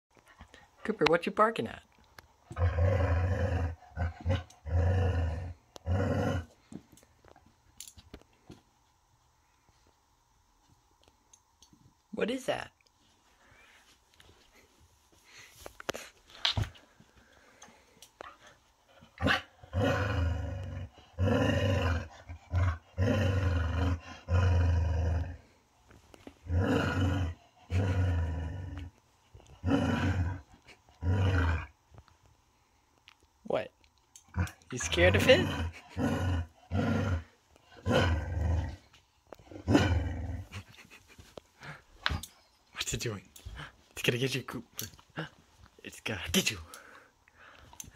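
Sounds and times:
dog growling: 2.5 - 6.6, 19.0 - 25.6, 26.4 - 31.8, 34.2 - 41.0.

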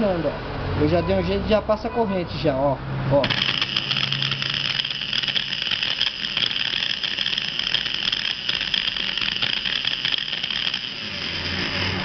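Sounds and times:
electric drill motor whirring: 3.2 - 12.0.

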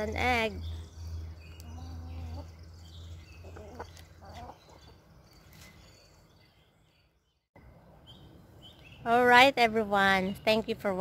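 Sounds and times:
hens clucking: 3.4 - 5.1.

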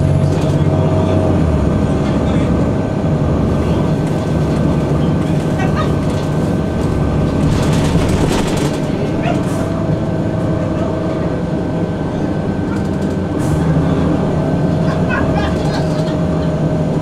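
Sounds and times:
bus body rattling: 0.0 - 17.0
bus engine and road rumble: 0.0 - 17.0.

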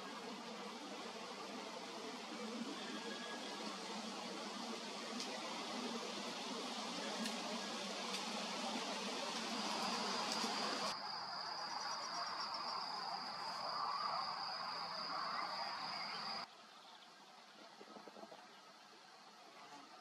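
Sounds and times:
outdoor background noise: 0.0 - 20.0.

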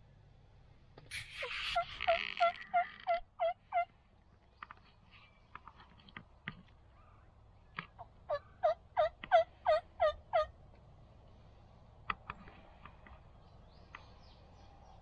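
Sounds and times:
turkey calling: 1.1 - 4.0, 6.9 - 10.6.

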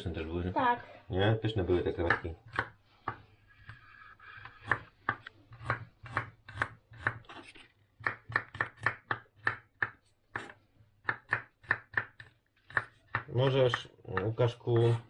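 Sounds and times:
knife chopping on cutting board: 4.4 - 7.4, 8.0 - 15.0.

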